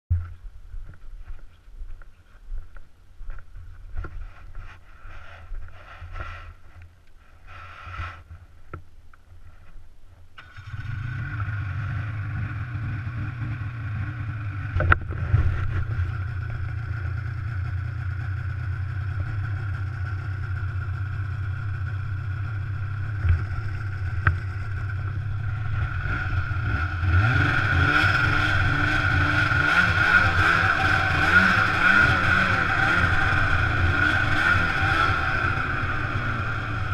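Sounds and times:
snowmobile engine: 10.4 - 36.9.

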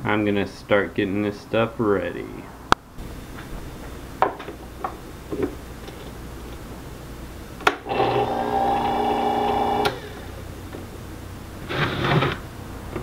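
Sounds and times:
small motor humming: 7.9 - 10.4.

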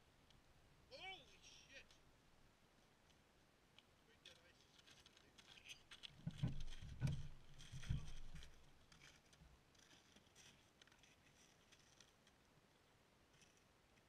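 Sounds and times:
faint crackling clicks: 0.2 - 0.4, 3.0 - 12.4.

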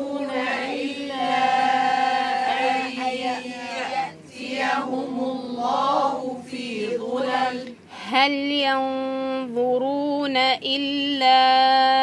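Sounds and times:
voices chanting in unison: 0.0 - 8.1.

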